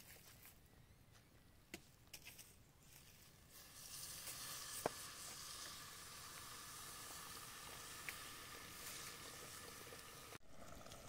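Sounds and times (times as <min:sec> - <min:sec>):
water sizzling in a hot pan: 0:03.4 - 0:11.0.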